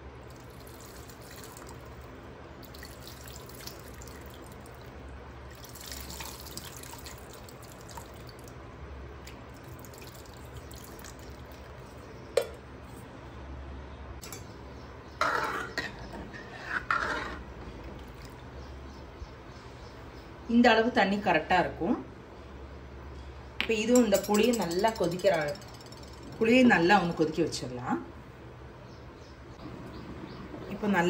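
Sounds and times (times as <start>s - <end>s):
water trickling and dripping: 0.2s - 8.6s, 9.2s - 12.6s
ladle stirring and scraping pan: 15.2s - 18.0s.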